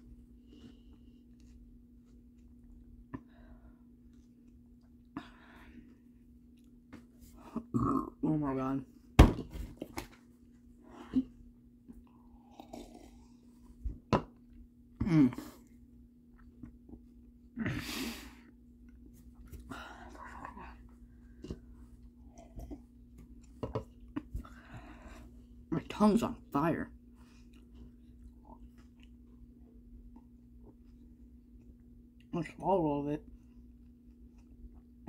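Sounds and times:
faint steady hum: 0:00.0 - 0:35.0
person groaning: 0:07.5 - 0:08.3, 0:15.0 - 0:15.6
faint chewing: 0:27.2 - 0:32.3.

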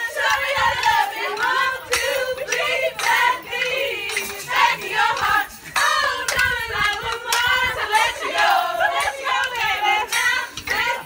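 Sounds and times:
women singing together: 0:00.0 - 0:11.0
hand claps: 0:00.2 - 0:11.0.

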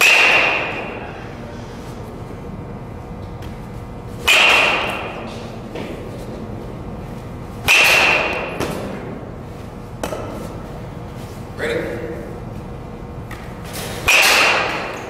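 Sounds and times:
metal bat hitting ball: 0:00.0 - 0:01.0, 0:04.2 - 0:05.9, 0:07.6 - 0:09.1, 0:14.0 - 0:15.0.

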